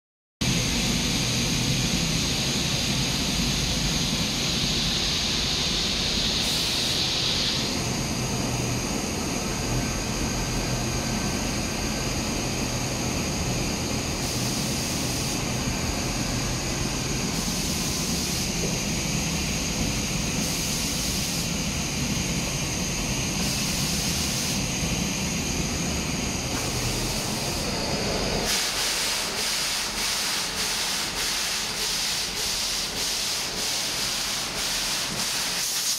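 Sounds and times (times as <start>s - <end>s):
extraction rushing hiss: 3.6s - 8.7s, 14.2s - 19.4s, 20.1s - 21.8s, 23.3s - 35.9s
compressed air blasts: 4.6s - 7.8s, 14.2s - 15.6s, 17.2s - 18.9s, 20.3s - 21.6s, 23.3s - 24.6s, 26.5s - 35.9s
short air pulses: 6.2s - 7.8s.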